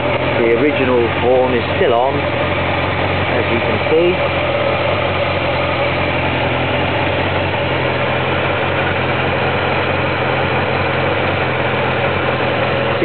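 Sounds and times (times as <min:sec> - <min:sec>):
motorcycle engine idling: 0:00.0 - 0:13.0.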